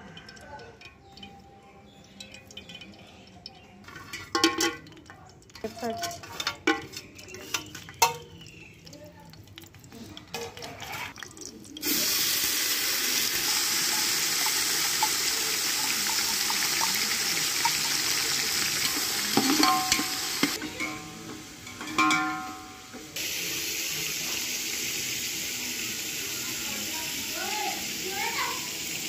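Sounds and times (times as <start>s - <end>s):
spices clicking into a pot: 0.1s - 11.9s, 13.4s - 23.0s
hot oil sizzling: 0.1s - 29.0s.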